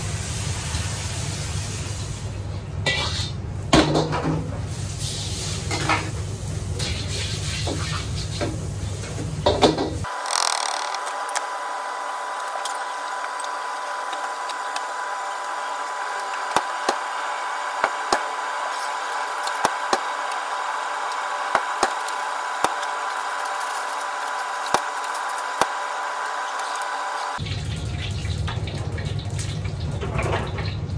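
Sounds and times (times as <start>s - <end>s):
kitchen hiss: 0.0s - 3.4s, 4.5s - 10.2s
brush scrubbing a wok: 5.0s - 9.2s.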